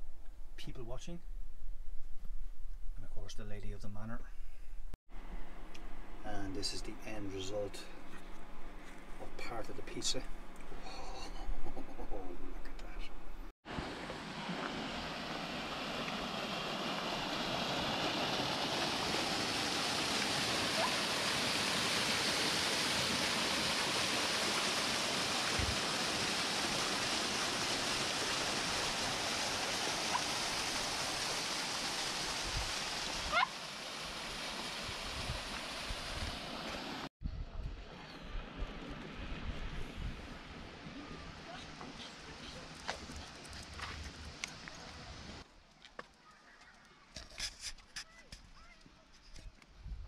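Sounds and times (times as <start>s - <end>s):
open-air background: 0.0s - 50.0s
waterfall splashing: 13.7s - 37.1s.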